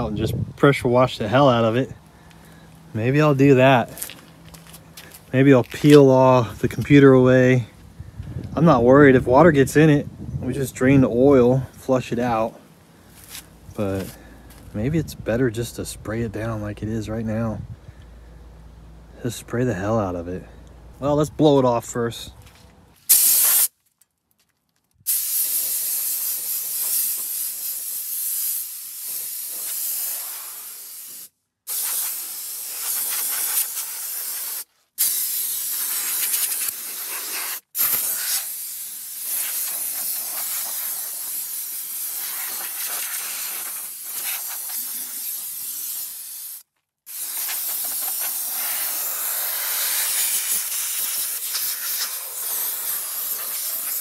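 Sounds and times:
compressed air blow gun hissing: 23.1s - 23.7s, 25.1s - 54.0s.

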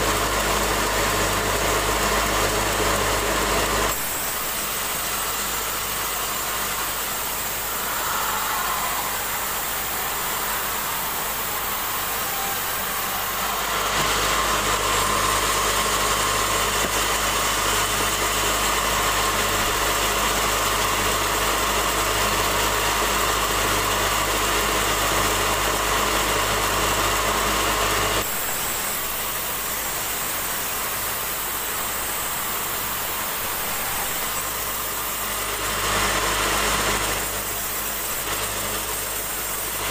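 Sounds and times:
band sawmill sawing log: 0.0s - 39.9s
low machine hum: 0.1s - 22.9s.

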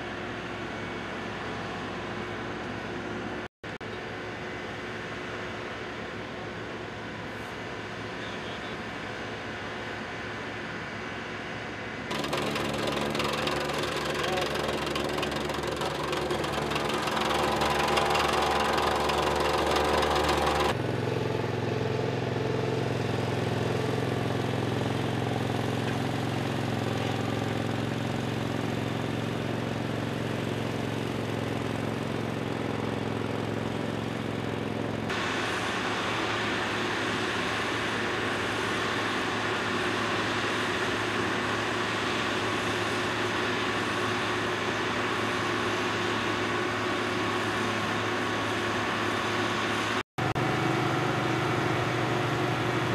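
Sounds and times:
heavy harsh paver engine: 0.0s - 52.9s
roller engine hum: 0.1s - 52.9s
plate compactor engine: 12.1s - 37.2s, 39.6s - 52.9s.

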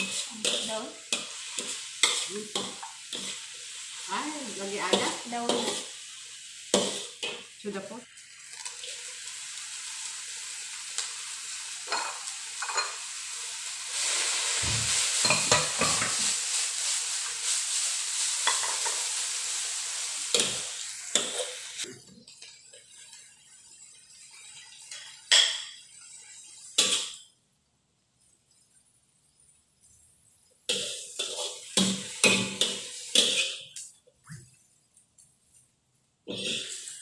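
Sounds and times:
spatula scraping and knocking pan: 0.0s - 3.5s, 4.8s - 5.9s, 6.7s - 7.5s, 14.6s - 16.4s, 18.4s - 19.1s, 26.8s - 27.2s, 30.7s - 33.7s
greens sizzling in a wok: 0.0s - 27.4s, 28.2s - 34.1s, 36.2s - 37.0s.

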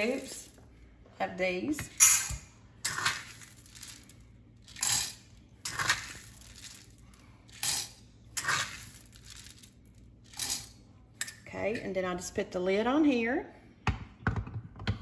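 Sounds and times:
coffee beans rattling: 0.0s - 0.6s, 2.0s - 10.8s.

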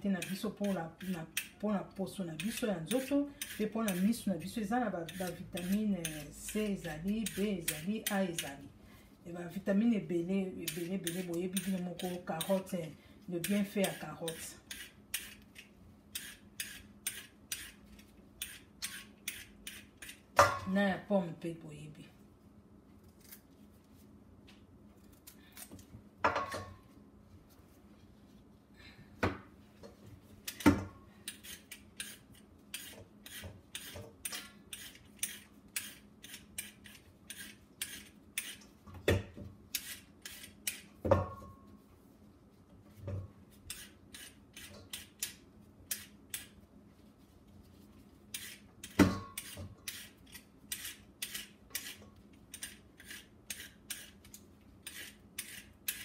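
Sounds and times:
faint steady hum: 0.0s - 56.0s
carrot peeler scraping: 2.4s - 8.6s, 10.6s - 12.8s, 13.4s - 20.2s, 31.3s - 38.7s, 39.7s - 40.9s, 43.6s - 46.6s, 48.3s - 56.0s.

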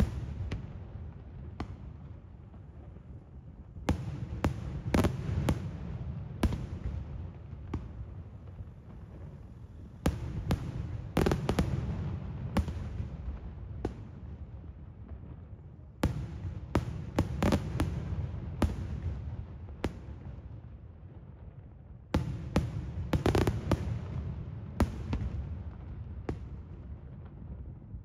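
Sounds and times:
fireworks bursting in bangs: 3.8s - 8.0s, 10.0s - 14.2s, 16.0s - 20.2s, 22.2s - 27.1s.

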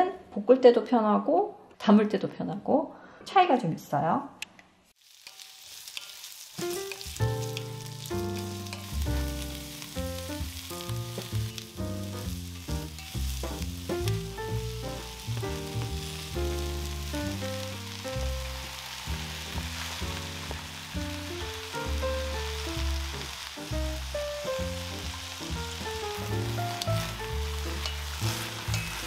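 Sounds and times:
vegetables sizzling in a pan: 5.0s - 29.0s
background music: 6.6s - 29.0s.

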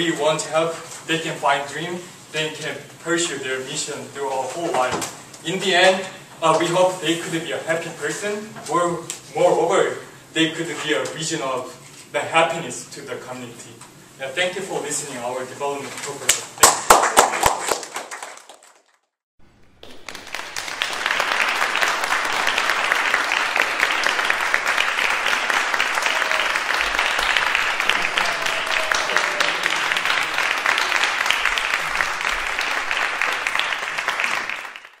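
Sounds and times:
audience applauding: 16.6s - 35.0s.

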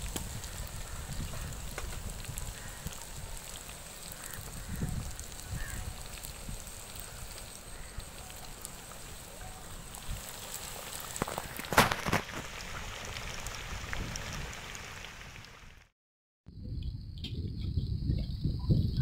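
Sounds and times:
loud crack from frying oil: 0.0s - 9.1s, 9.8s - 15.6s
chicken deep-frying in oil: 0.0s - 15.9s.

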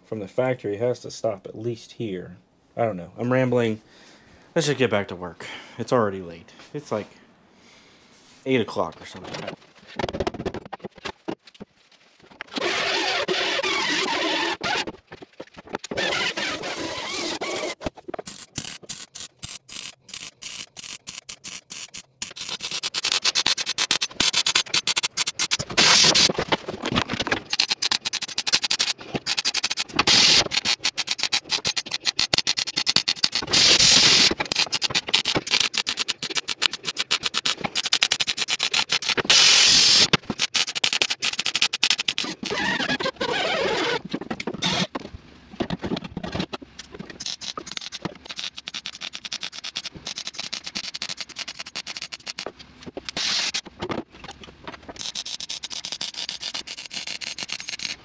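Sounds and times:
mig welder crackling: 15.8s - 43.8s, 46.8s - 52.5s, 53.1s - 53.7s, 55.0s - 58.0s.

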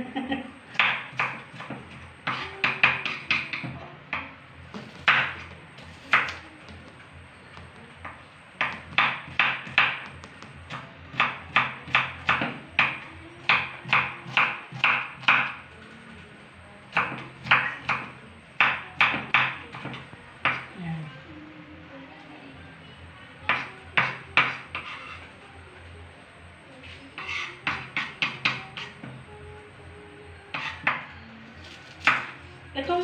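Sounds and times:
knife chopping on wooden board: 0.8s - 3.8s, 4.7s - 7.0s, 7.6s - 15.6s, 23.5s - 25.2s, 27.2s - 28.9s, 31.9s - 32.4s.

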